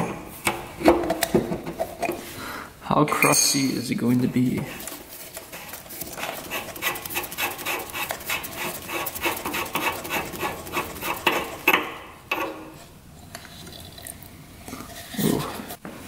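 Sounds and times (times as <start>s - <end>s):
metal scraping and clinking: 4.6s - 13.9s.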